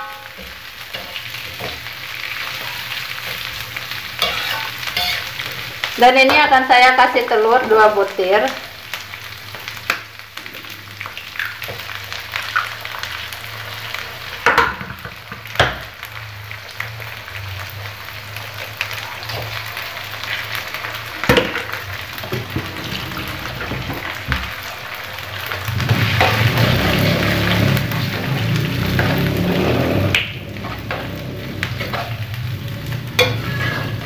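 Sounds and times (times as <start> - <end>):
food sizzling in a wok: 0.0 - 34.0
eggs cracked on a wok: 14.4 - 16.0.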